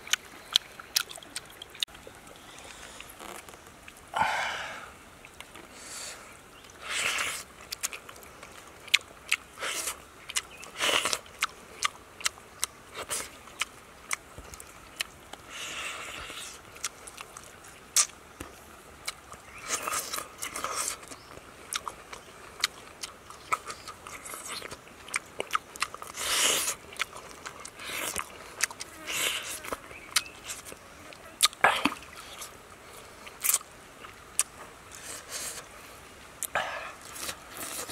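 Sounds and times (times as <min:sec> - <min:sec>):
person chewing meat: 0:00.0 - 0:04.0, 0:06.7 - 0:30.8, 0:31.4 - 0:35.7, 0:36.4 - 0:37.9
lip smacks: 0:16.2 - 0:22.0, 0:31.4 - 0:32.6.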